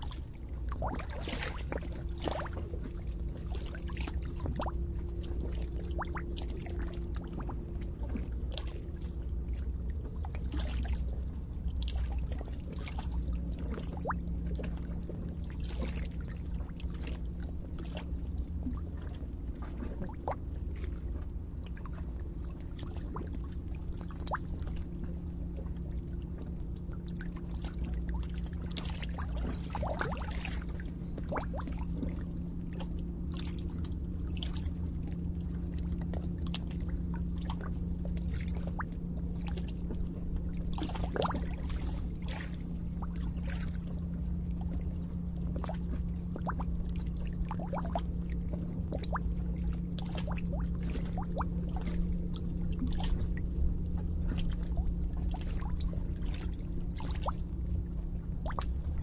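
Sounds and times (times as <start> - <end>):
small water plops and splashes: 0.0 - 4.7, 58.4 - 58.7
steady low hum: 0.0 - 59.0
water bubbling and gurgling: 0.0 - 59.0.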